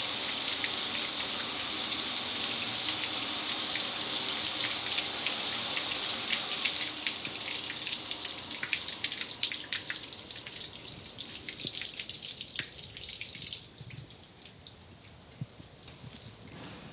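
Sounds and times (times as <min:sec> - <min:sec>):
water spray hissing on grill: 0:00.0 - 0:11.7
water dripping and trickling: 0:00.0 - 0:16.6.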